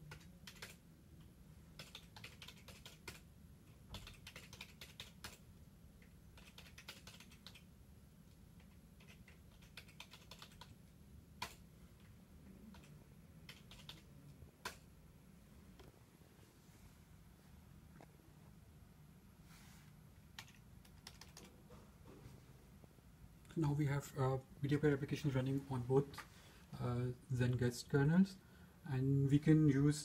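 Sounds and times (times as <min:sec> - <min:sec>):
keyboard typing: 0:00.0 - 0:00.8, 0:01.8 - 0:03.3, 0:03.9 - 0:05.4, 0:06.0 - 0:07.7, 0:08.6 - 0:11.6, 0:12.7 - 0:14.8, 0:20.3 - 0:21.6
faint low hum: 0:00.0 - 0:30.0.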